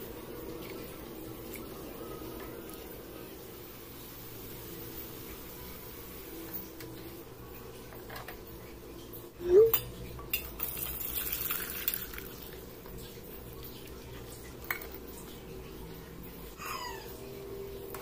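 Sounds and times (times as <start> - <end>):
kitchenware clattering and scraping: 7.9 - 8.4.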